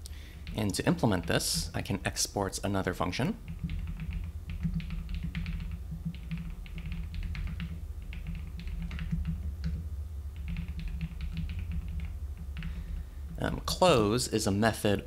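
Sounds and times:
typing on computer keyboard: 0:03.4 - 0:09.8, 0:10.4 - 0:13.0.

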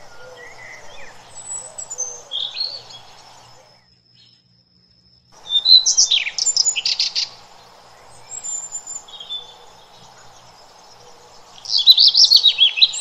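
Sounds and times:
birds chirping: 0:00.0 - 0:03.8, 0:05.4 - 0:13.0
steady outdoor hiss: 0:00.0 - 0:13.0.

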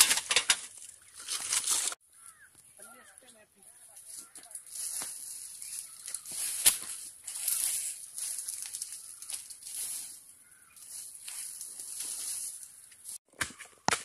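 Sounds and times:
leaves and plastic rustling: 0:00.0 - 0:13.2.

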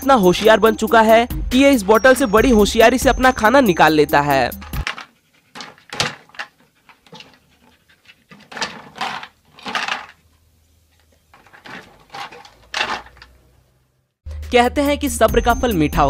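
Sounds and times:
dog panting: 0:01.7 - 0:08.9.

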